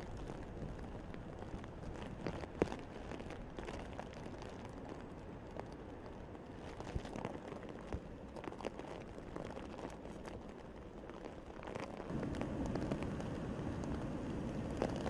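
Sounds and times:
strong wind rumbling: 12.0s - 15.0s.

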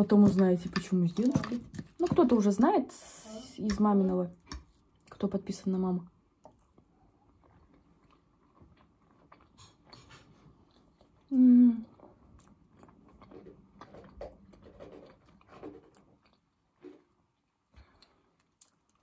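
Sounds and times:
woman chewing food: 6.4s - 19.0s.

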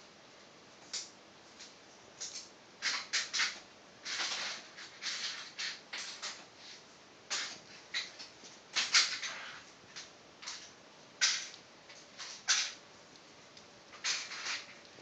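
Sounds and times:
marbles rolling on wire tracks: 2.2s - 6.4s, 7.3s - 11.5s, 12.2s - 12.8s, 13.9s - 14.9s.

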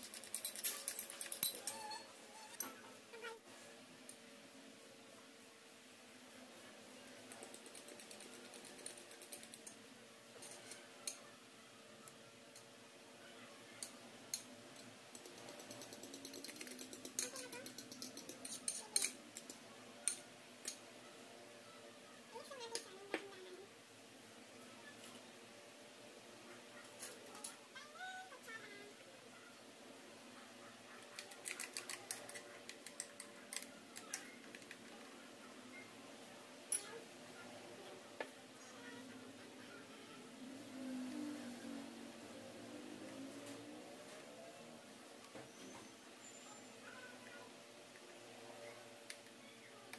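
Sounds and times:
spoon clicking against a bowl: 13.8s - 20.8s.

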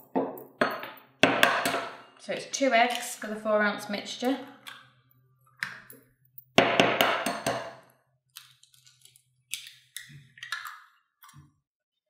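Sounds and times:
eggshell cracking: 8.3s - 11.0s.

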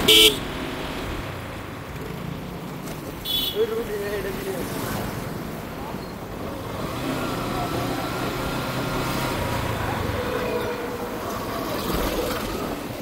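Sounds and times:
vehicles passing: 0.0s - 13.0s.

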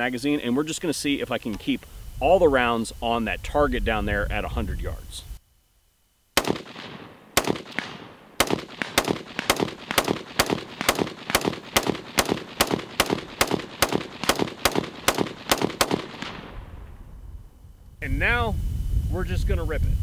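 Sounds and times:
rifle shots: 6.4s - 17.0s.

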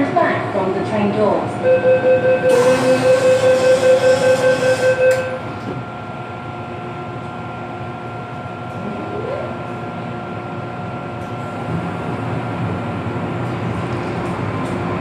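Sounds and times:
subway car interior hum: 0.0s - 15.0s
high steady tone: 1.6s - 5.4s
short rising whine: 2.4s - 5.4s
train rumbling pulling away: 2.4s - 5.8s.

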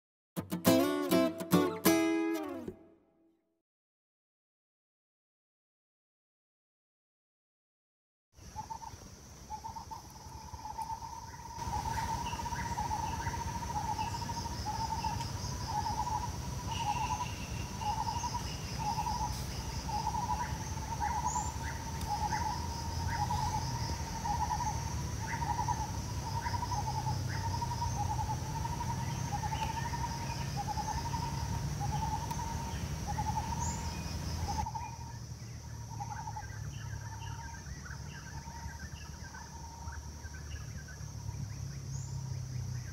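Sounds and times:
bird calling: 8.4s - 42.2s.

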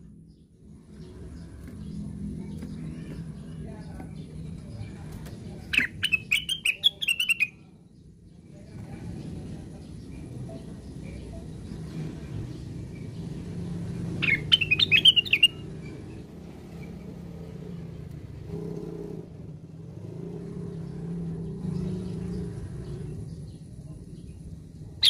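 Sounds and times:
bird chirping: 0.0s - 17.8s.

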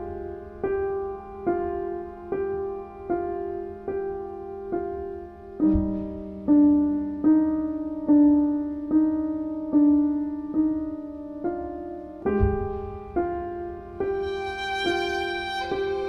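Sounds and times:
slow piano music: 0.0s - 16.0s
deep low boom: 5.6s - 6.5s, 12.3s - 14.2s.

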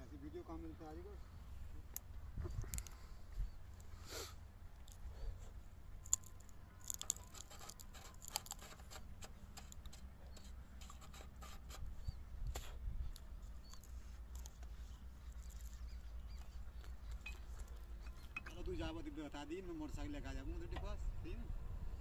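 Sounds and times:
low steady rumble: 0.0s - 22.0s
hands clicking and scratching: 6.0s - 11.8s.

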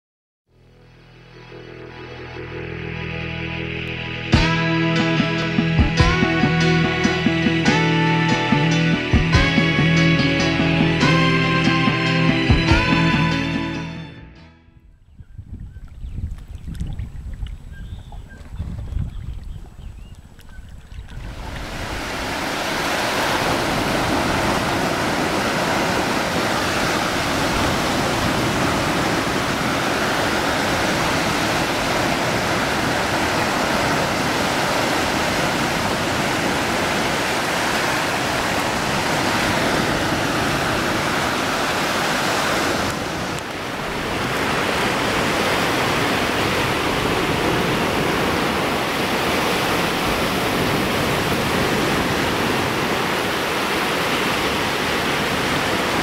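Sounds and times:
waves breaking on a beach: 20.4s - 56.0s.

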